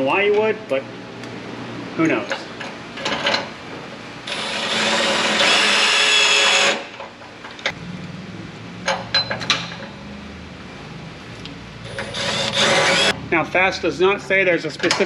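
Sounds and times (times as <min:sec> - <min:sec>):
cordless drill whining: 0:04.3 - 0:06.8, 0:11.9 - 0:13.1.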